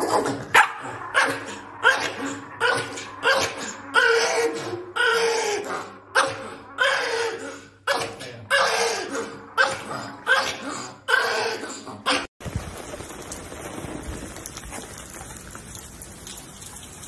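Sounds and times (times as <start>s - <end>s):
small dog barking: 0.6s - 1.3s.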